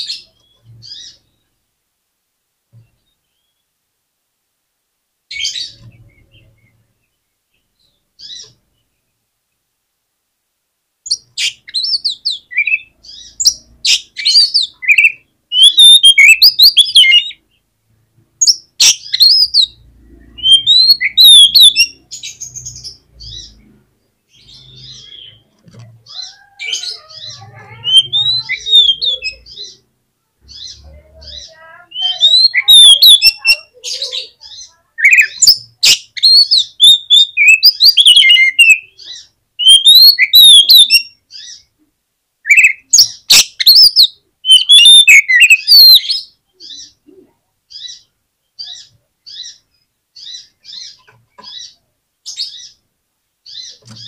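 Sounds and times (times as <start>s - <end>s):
bird singing whistled phrases: 11.1s - 17.4s, 18.8s - 22.0s, 26.2s - 29.8s, 31.9s - 34.3s, 35.0s - 39.0s, 39.6s - 41.5s, 42.5s - 46.9s.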